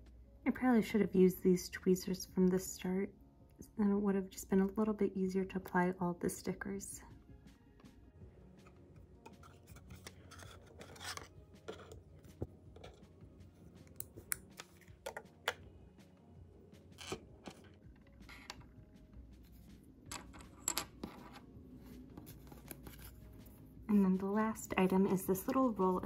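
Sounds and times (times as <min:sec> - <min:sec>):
tweezers and plastic pieces tapping: 0:08.6 - 0:13.1, 0:13.8 - 0:15.6, 0:16.9 - 0:18.6.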